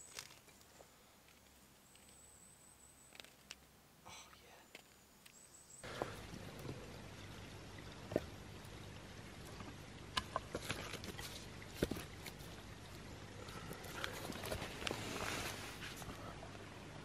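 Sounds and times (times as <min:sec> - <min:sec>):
sticks laid on soil: 0:00.0 - 0:02.3.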